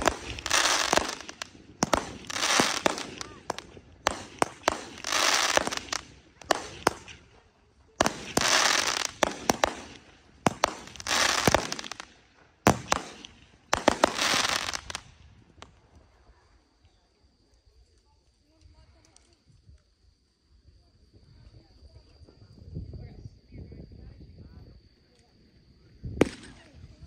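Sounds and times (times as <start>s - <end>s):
fireworks bangs: 0.0s - 15.7s, 26.2s - 26.8s
hissing crackle: 0.0s - 17.0s.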